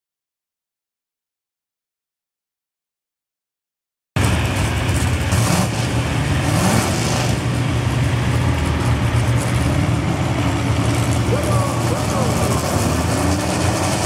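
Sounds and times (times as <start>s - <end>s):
truck engine running at low revs: 4.2s - 14.0s.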